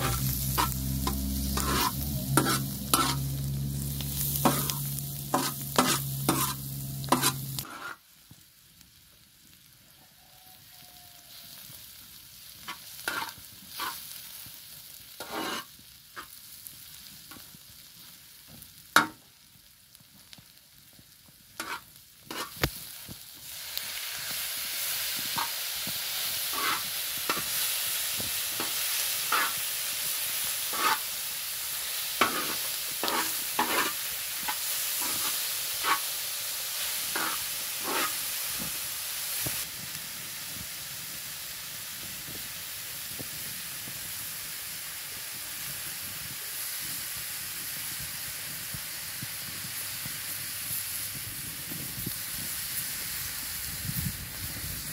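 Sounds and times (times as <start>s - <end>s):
metal spoon scraping a pan: 0.0s - 8.0s, 12.6s - 14.2s, 15.2s - 16.4s, 21.6s - 22.7s, 25.2s - 25.6s, 26.4s - 27.8s, 28.5s - 29.7s, 30.6s - 31.2s, 32.0s - 36.2s, 36.8s - 38.3s
vegetables sizzling in a pan: 0.0s - 54.9s.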